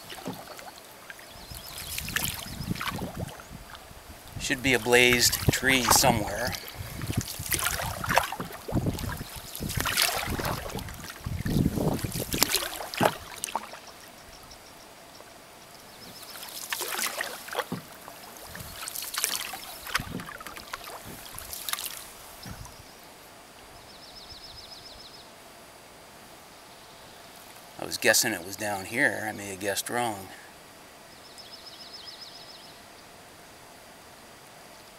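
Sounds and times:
paddle splashing in water: 0.0s - 14.0s, 16.0s - 22.8s.

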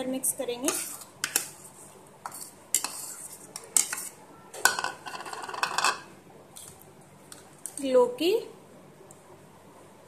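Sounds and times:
metal spoon scraping a steel bowl: 0.6s - 6.0s.

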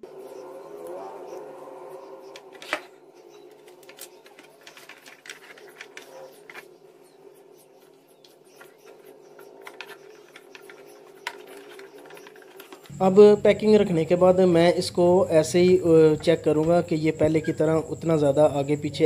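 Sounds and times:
faint steady hum: 12.8s - 19.0s.

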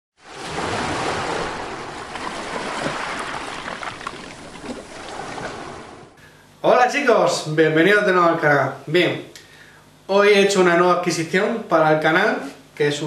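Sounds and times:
water splashing: 0.2s - 6.2s
bubbling pops: 2.1s - 5.6s.

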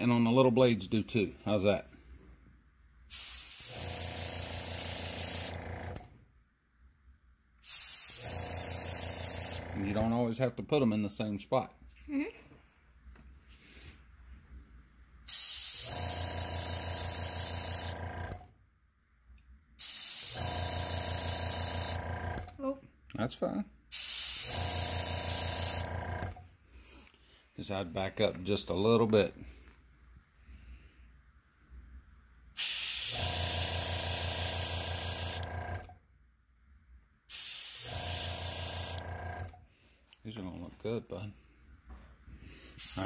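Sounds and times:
airbrush spraying hiss: 3.1s - 5.5s, 15.3s - 15.9s, 19.8s - 20.4s, 24.0s - 25.8s, 32.6s - 35.4s, 37.3s - 39.0s, 42.8s - 43.0s
compressor motor humming: 3.1s - 6.2s, 7.8s - 10.2s, 15.3s - 18.5s, 19.8s - 22.6s, 24.0s - 26.4s, 32.6s - 36.0s, 37.4s - 39.6s, 42.8s - 43.0s.

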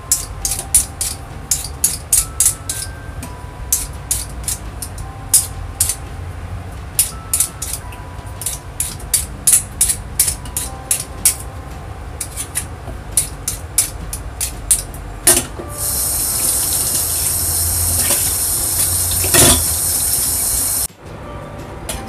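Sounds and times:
water running from tap: 15.8s - 20.9s.

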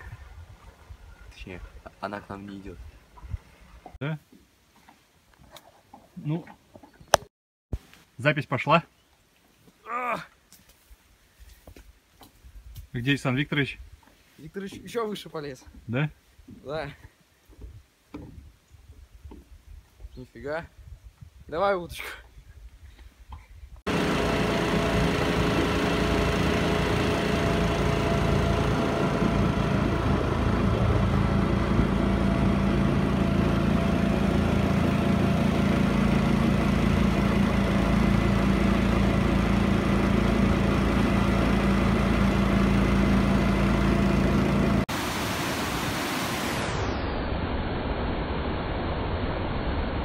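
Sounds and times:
outboard motor humming: 23.9s - 46.1s
waterfall rushing: 44.9s - 46.8s.

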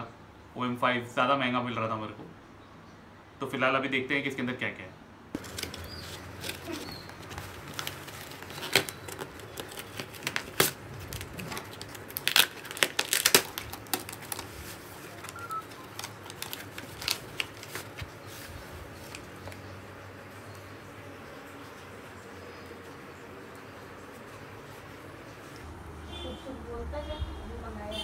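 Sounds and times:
tape ripping and crinkling: 5.4s - 19.7s.

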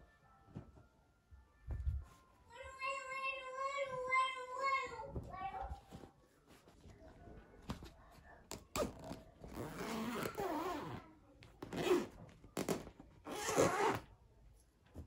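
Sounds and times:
zipper being pulled shut: 8.7s - 11.0s, 11.6s - 14.0s.

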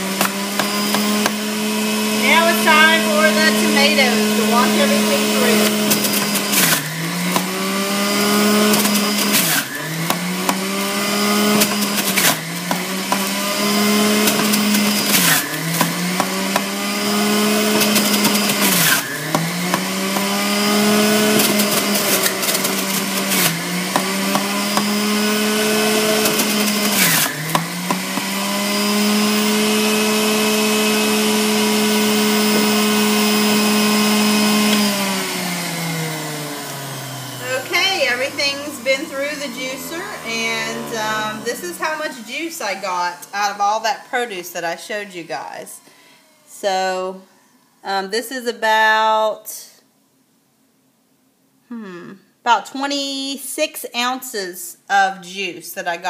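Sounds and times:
produce crunching in juicer: 0.0s - 44.1s
juicer motor running: 0.0s - 46.5s.

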